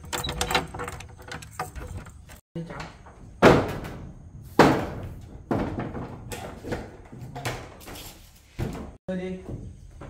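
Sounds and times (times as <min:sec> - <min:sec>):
sharp knocks and thuds: 0:00.4 - 0:07.9.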